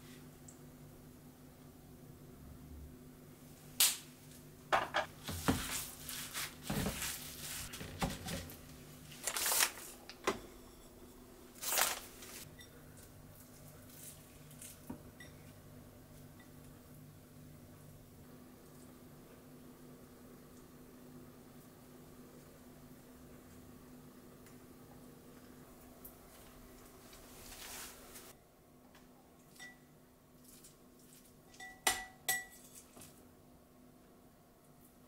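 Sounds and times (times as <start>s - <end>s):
plastic packet rustling: 5.6s - 10.1s, 11.6s - 12.4s.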